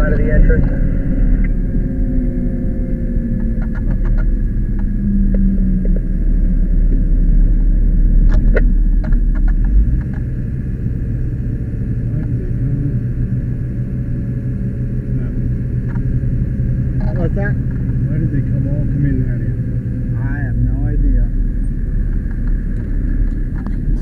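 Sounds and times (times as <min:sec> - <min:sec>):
truck engine and road noise: 0:00.0 - 0:24.0
sharp clicks: 0:08.2 - 0:10.3.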